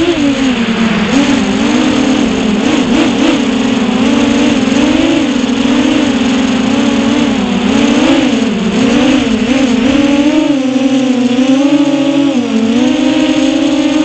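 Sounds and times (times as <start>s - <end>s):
rush of air: 0.0s - 7.6s
drone motors whining: 0.0s - 14.0s.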